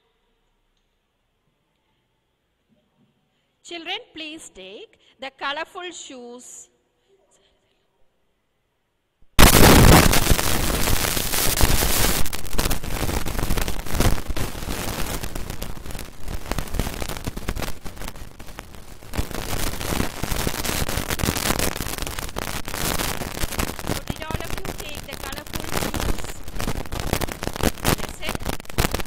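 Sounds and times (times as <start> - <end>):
harsh crackling static: 9.3 - 29.0.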